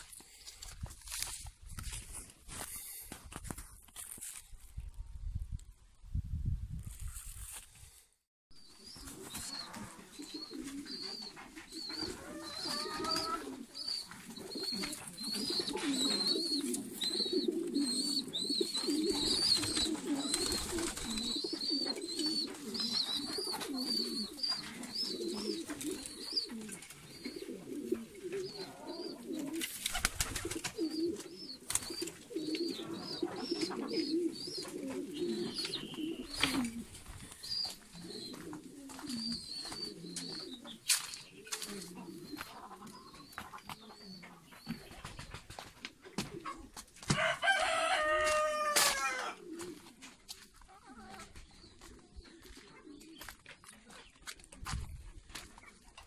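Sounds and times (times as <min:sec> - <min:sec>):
pigeons cooing: 0:08.7 - 0:45.2, 0:46.0 - 0:54.3.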